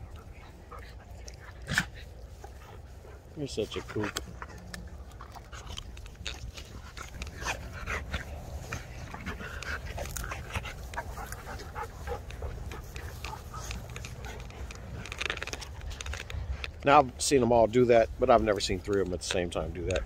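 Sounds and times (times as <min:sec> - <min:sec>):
dogs panting: 0:00.0 - 0:16.8
scuffs and rustles in grass: 0:05.8 - 0:19.8.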